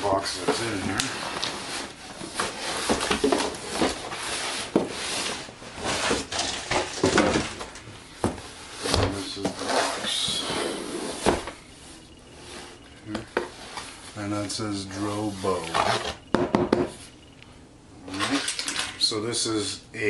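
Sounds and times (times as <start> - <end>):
cardboard rustling and scraping: 0.0 - 16.3
box knocking on counter: 16.3 - 16.9.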